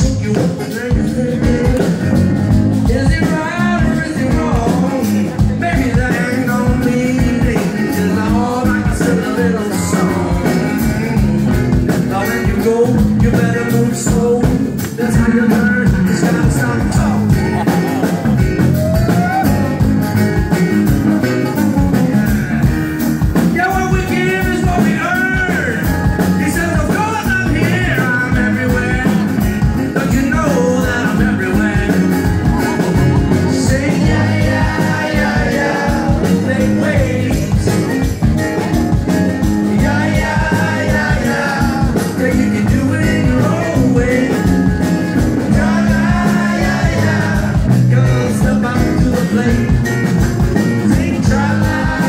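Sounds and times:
acoustic guitar: 0.0 - 52.0
electric bass: 0.0 - 52.0
man singing lead vocal: 0.0 - 52.0.

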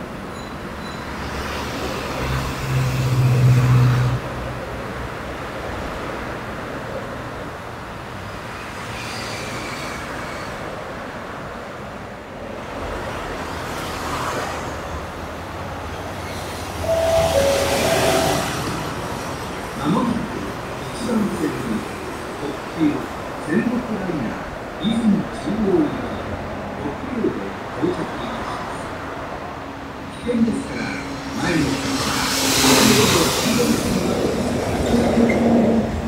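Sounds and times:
two-note tone: 16.9 - 19.0.

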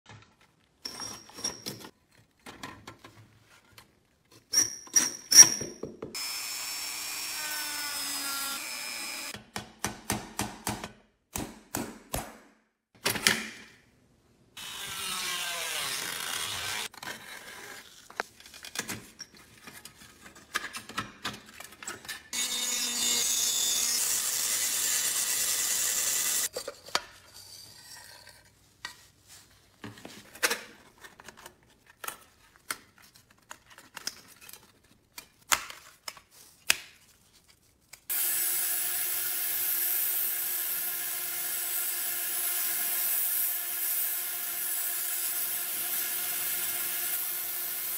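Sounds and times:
power tool running: 6.2 - 9.4, 22.4 - 26.5, 38.1 - 47.9.

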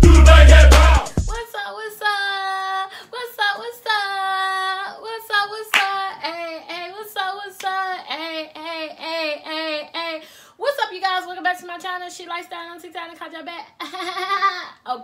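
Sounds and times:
woman singing unaccompanied: 1.3 - 13.7
sharp claps: 5.7 - 6.0.

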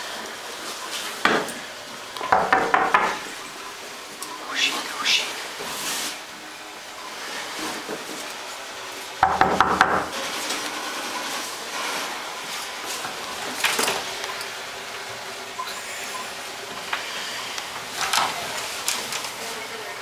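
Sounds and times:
knocks on wooden door: 9.2 - 10.1.

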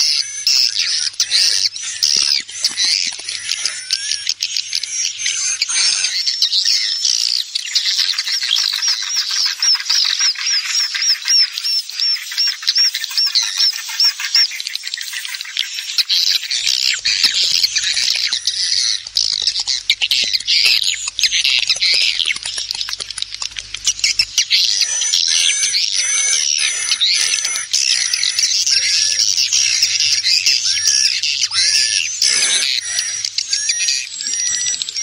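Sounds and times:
chatter of many birds: 0.0 - 35.0
swiftlets chirping: 16.4 - 35.0
quick bird clicks: 19.0 - 24.3.

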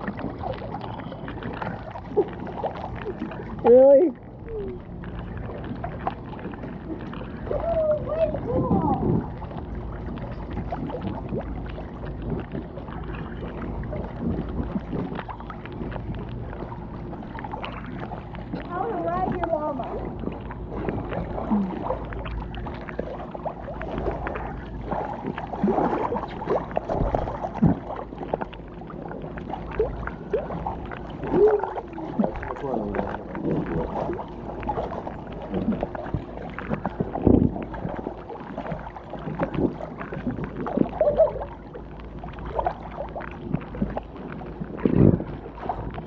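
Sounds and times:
pool water sloshing and gurgling: 0.0 - 46.0
muffled splashes and knocks: 4.6 - 46.0.

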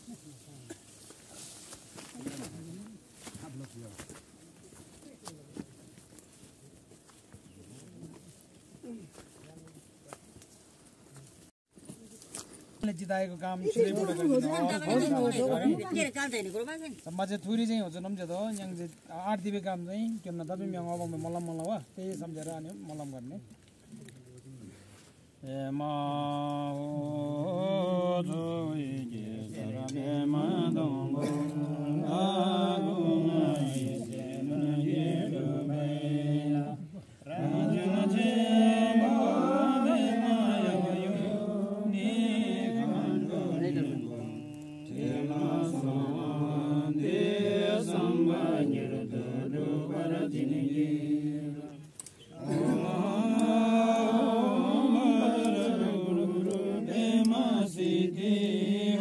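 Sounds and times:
voices chanting a prayer: 12.8 - 23.5, 24.4 - 59.0.

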